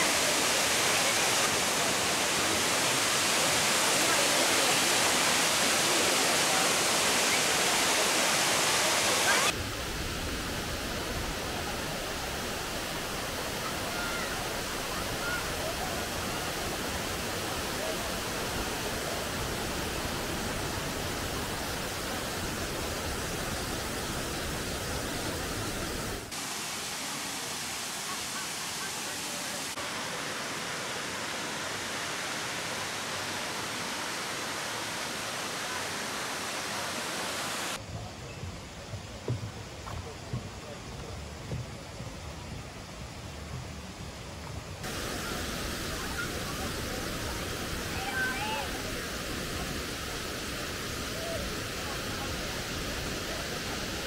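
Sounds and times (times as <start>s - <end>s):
waterfall rushing: 0.0s - 37.9s, 44.8s - 54.0s.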